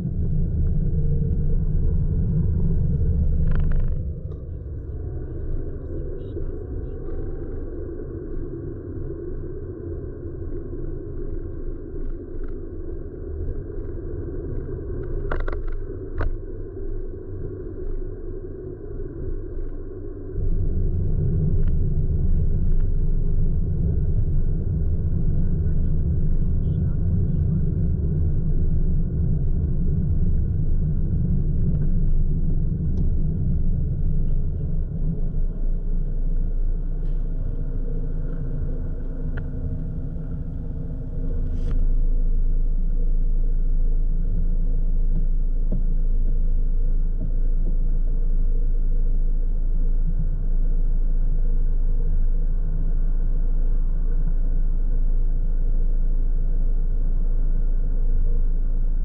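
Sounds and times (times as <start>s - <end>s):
car cabin rumble: 20.4s - 56.0s
car engine idling: 34.0s - 48.5s.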